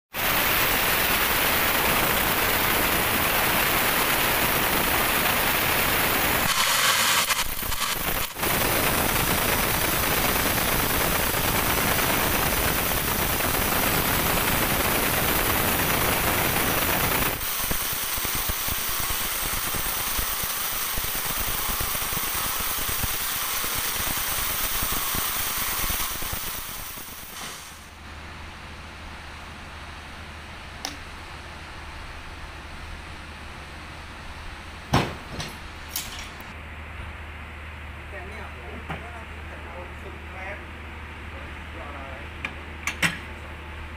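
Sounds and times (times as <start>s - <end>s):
band saw cutting log: 6.2s - 15.0s.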